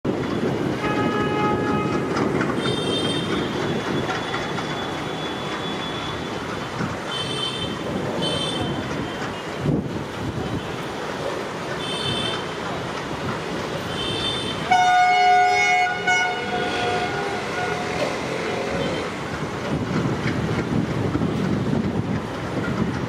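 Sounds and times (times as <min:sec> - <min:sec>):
diesel locomotive engine rumble: 0:00.0 - 0:23.0
multi-tone train horn: 0:00.8 - 0:03.6, 0:13.9 - 0:19.1.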